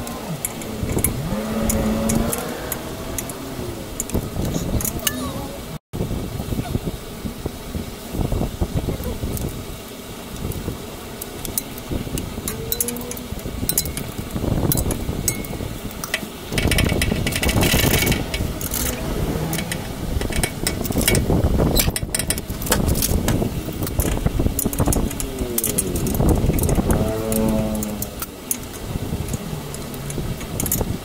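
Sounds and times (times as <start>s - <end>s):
steady rumbling background: 0.0s - 7.5s, 10.6s - 31.0s
metallic clicks of hand tools: 0.4s - 3.4s, 11.4s - 30.9s.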